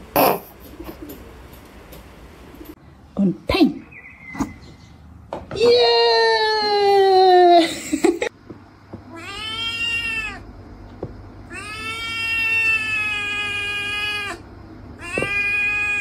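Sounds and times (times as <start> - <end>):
kitten meowing: 9.1 - 10.4, 11.5 - 14.4, 15.0 - 16.0.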